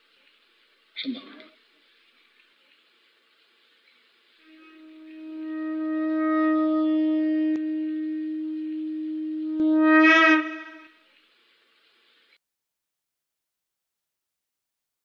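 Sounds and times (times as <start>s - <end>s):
conch shell blown: 4.4s - 11.0s.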